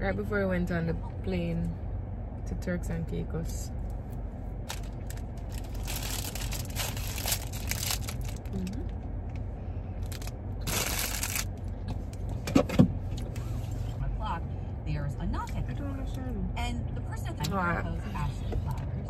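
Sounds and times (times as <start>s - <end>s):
car interior hum: 0.0s - 19.0s
plastic wrapping crinkling: 4.6s - 8.9s, 10.0s - 11.6s.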